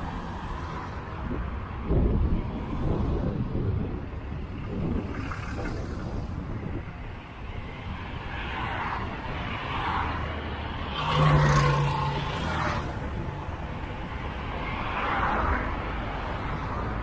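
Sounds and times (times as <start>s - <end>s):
road rumble: 0.0s - 17.0s
wind on microphone: 0.9s - 8.4s
motor vehicle passing: 9.8s - 13.5s.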